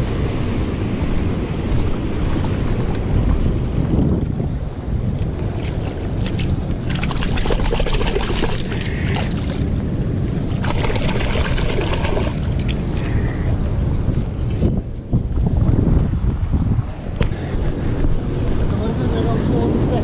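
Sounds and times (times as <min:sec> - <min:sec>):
wind rumbling on microphone: 0:00.0 - 0:20.0
sea water sloshing over rocks: 0:05.6 - 0:09.8, 0:10.4 - 0:13.2.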